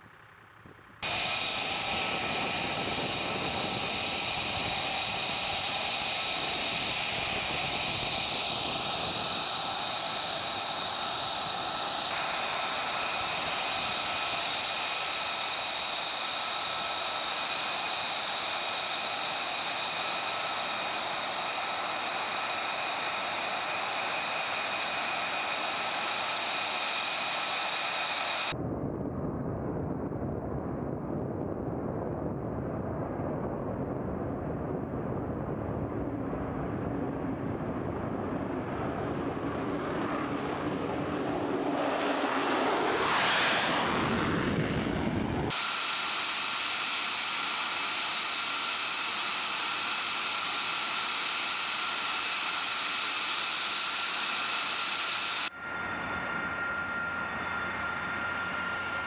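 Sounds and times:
jet engine whine: 0.0 - 59.0
fighter jet taking off: 1.0 - 59.0.

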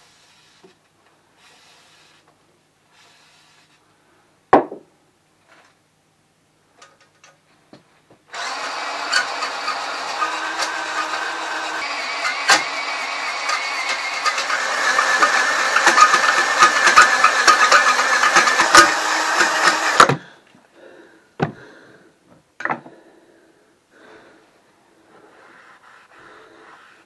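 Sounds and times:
cordless drill whirring: 8.3 - 20.2.

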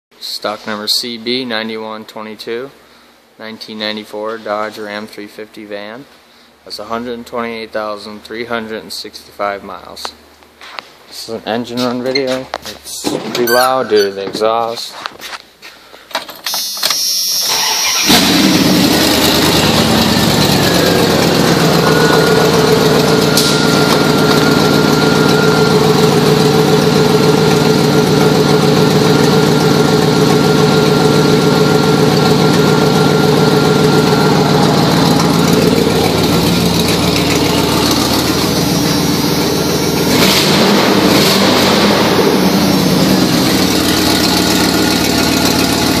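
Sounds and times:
van engine cranking and idling: 17.5 - 46.0.

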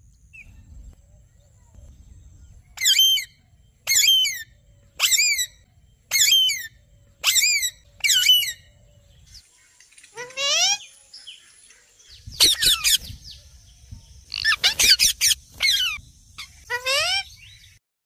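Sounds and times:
parakeet calling: 2.8 - 8.8, 10.1 - 11.4, 12.3 - 13.2, 14.3 - 17.8.

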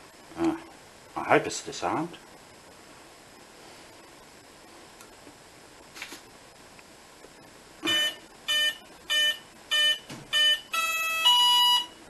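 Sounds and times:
short electronic beeps: 7.8 - 11.9
long steady tones: 7.8 - 12.0.

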